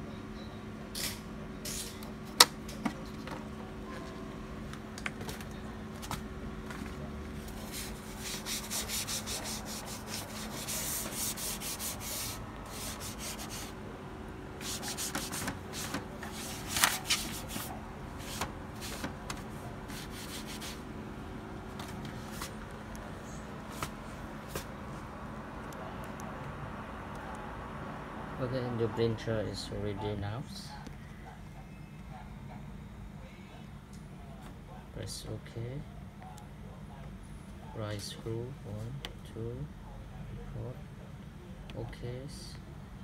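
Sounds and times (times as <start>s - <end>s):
printer rubbing and scraping: 6.0s - 13.8s, 14.6s - 20.9s.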